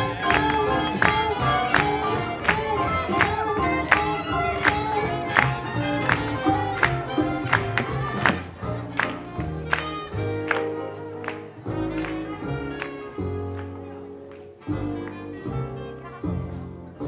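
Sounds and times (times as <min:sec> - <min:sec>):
steady drum beat: 0:00.0 - 0:10.8
swing jazz band playing: 0:00.0 - 0:17.0.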